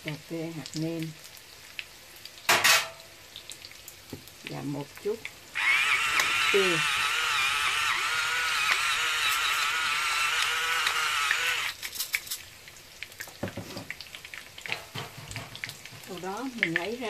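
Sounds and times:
electric pepper grinder whine: 5.6 - 11.8.

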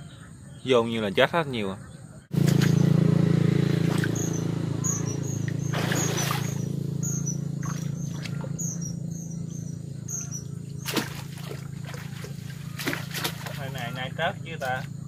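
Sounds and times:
steady low hum: 2.2 - 15.0
muddy water splashing: 2.3 - 15.0
light water sounds: 10.8 - 13.9.

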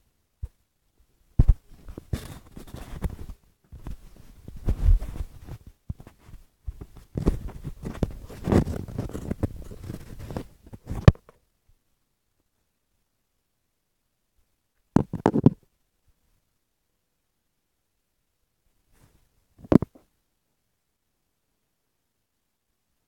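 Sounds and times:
phone rustling against clothing: 1.4 - 11.2.

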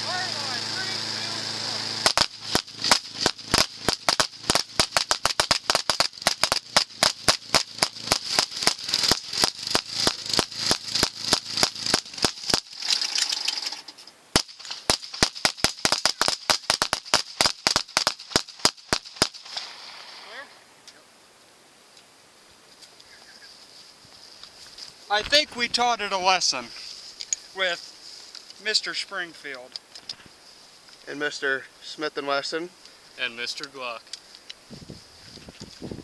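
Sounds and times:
rapid pistol fire: 0.8 - 13.4, 14.3 - 20.4.

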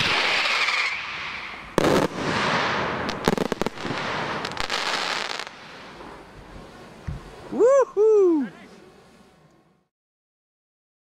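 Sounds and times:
firework bang: 0.0 - 5.8
fireworks crackling: 0.0 - 9.3.

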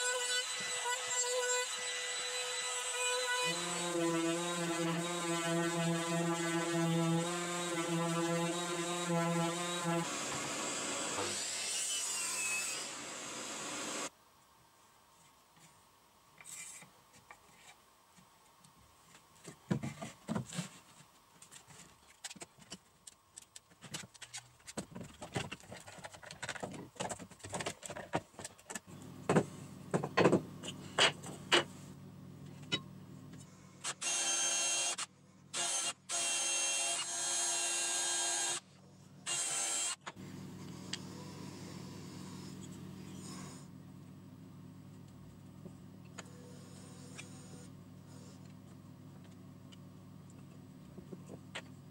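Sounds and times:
low steady hum: 28.9 - 33.9, 40.2 - 51.9
small electric power tool running: 33.9 - 38.6.

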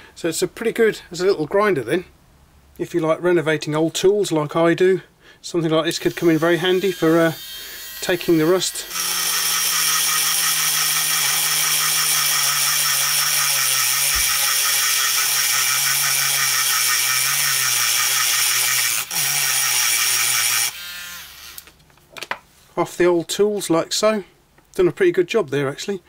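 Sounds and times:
micro grinder grinding rust off metal: 6.0 - 21.7.

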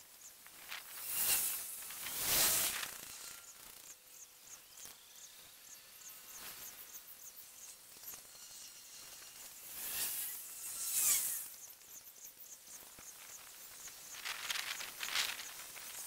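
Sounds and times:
faint high-pitched chirps: 0.0 - 16.0
loud hissing rushes: 0.6 - 3.3.

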